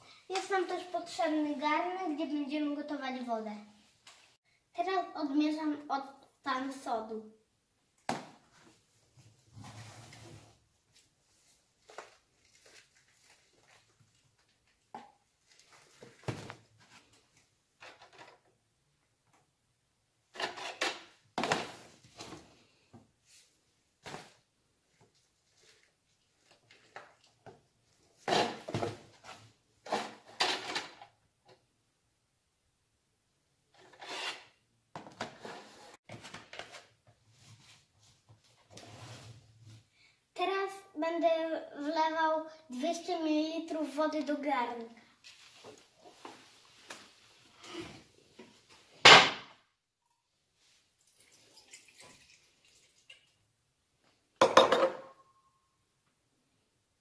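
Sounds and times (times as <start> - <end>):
water trickling into saucepan: 51.0 - 53.4.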